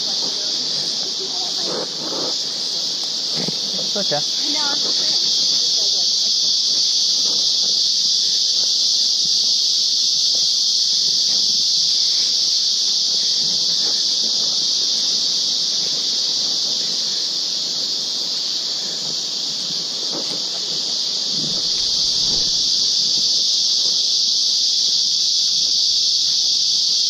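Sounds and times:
insects droning: 0:00.0 - 0:27.0
faint footsteps on trail: 0:18.7 - 0:23.3.

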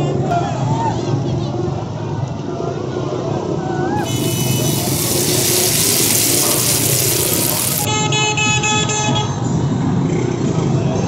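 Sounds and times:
hot oil sizzling: 0:04.0 - 0:07.9
street noise: 0:04.0 - 0:08.1.

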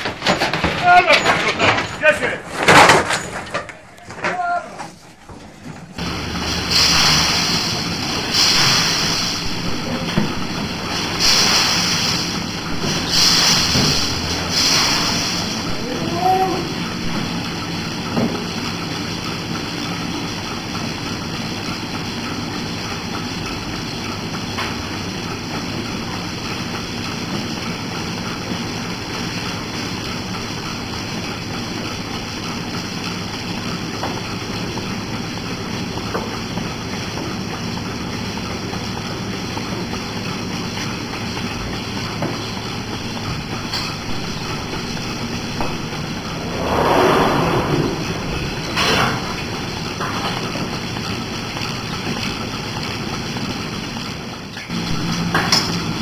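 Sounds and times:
milking equipment running: 0:00.0 - 0:56.0
rushing sounds: 0:43.9 - 0:50.4.

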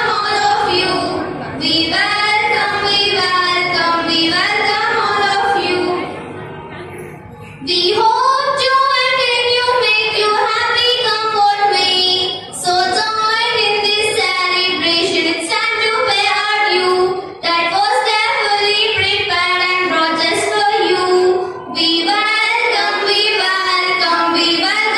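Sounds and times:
girls singing: 0:00.0 - 0:06.3, 0:07.6 - 0:24.9.

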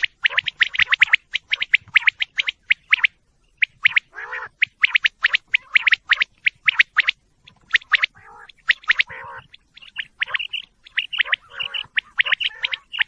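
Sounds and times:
quail high chirps: 0:00.0 - 0:13.0
quail raspy call: 0:03.6 - 0:07.0, 0:07.7 - 0:13.0.

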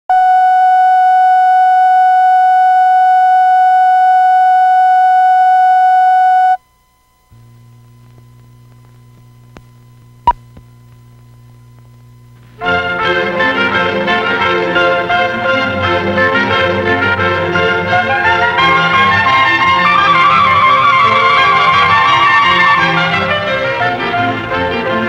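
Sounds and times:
test tone with overtones: 0:00.1 - 0:07.8
low steady hum: 0:00.1 - 0:20.6.

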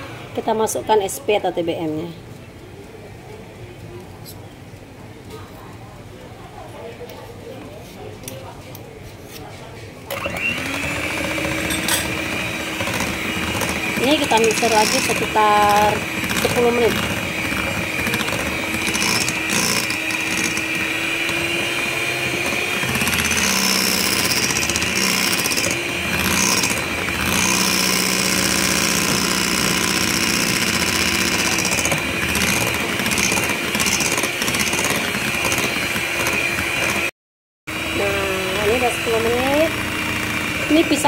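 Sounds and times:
electric hand mixer whipping batter: 0:00.0 - 0:00.8, 0:10.1 - 0:37.1, 0:37.7 - 0:41.0.

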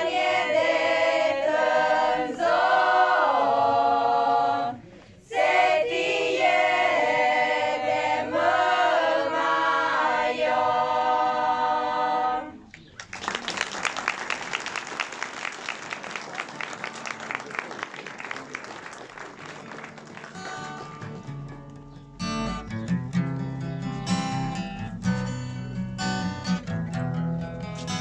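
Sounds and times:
women singing a cappella: 0:00.0 - 0:12.7
audience applause: 0:13.0 - 0:21.3.

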